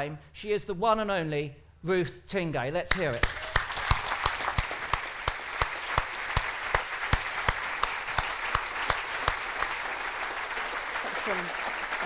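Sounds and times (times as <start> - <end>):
close hand claps: 2.9 - 12.0
audience applauding: 3.1 - 12.0.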